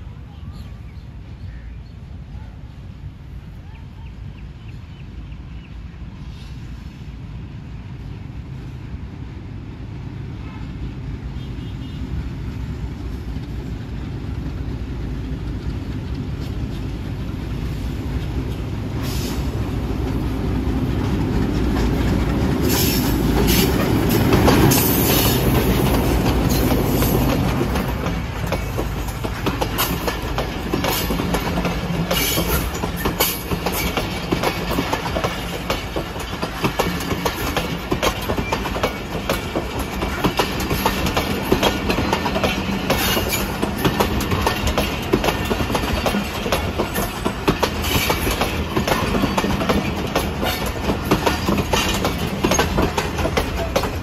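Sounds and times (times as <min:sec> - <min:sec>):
diesel train engine drone: 0:00.0 - 0:54.0
train wheel noise: 0:03.0 - 0:54.0
wheels clicking over rail joints: 0:20.0 - 0:54.0.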